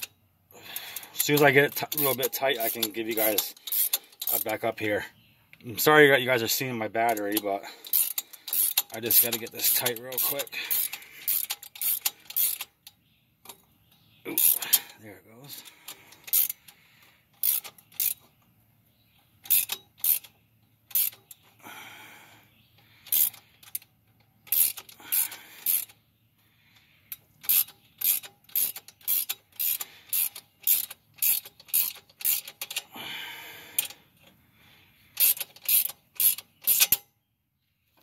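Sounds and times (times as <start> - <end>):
ratchet wrench clicking: 0.7 - 4.6, 7.1 - 13.6, 14.4 - 14.8, 15.6 - 16.7, 17.4 - 18.2, 19.4 - 21.4, 23.0 - 26.0, 27.1 - 32.9, 33.8 - 34.0, 35.1 - 37.1.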